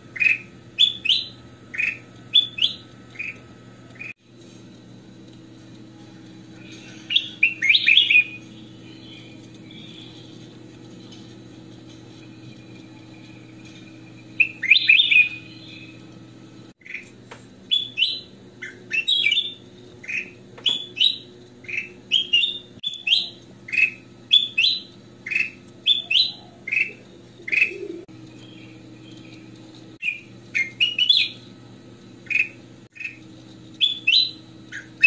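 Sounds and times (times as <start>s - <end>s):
steady low hum: 0.0s - 35.0s
bird singing whistled phrases: 0.2s - 3.4s, 7.0s - 10.3s, 14.3s - 16.1s, 17.7s - 29.2s, 30.0s - 31.5s, 33.8s - 35.0s.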